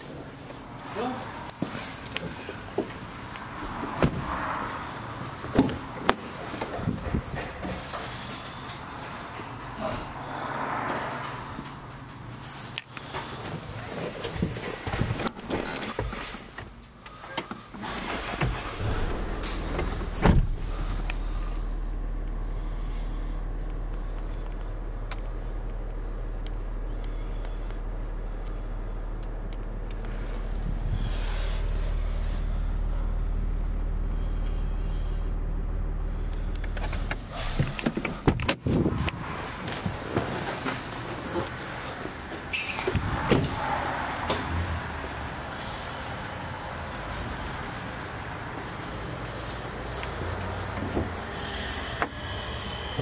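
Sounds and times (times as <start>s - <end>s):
sharp knocks and thuds: 4.0s - 4.4s
diesel engine idling: 17.0s - 53.0s
steady low hum: 18.6s - 38.3s
loud thump: 18.8s - 20.8s.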